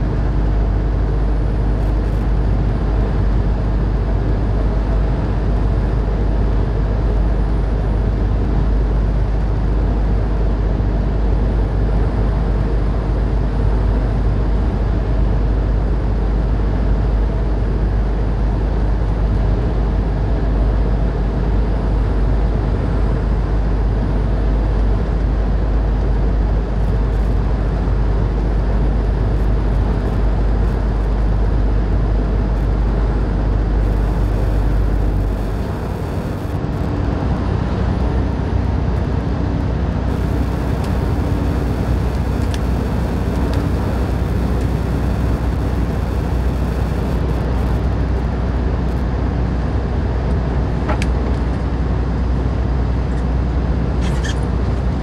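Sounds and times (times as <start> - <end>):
truck engine drone: 26.1 - 51.3
tyre and road noise: 32.5 - 37.2, 39.0 - 49.1.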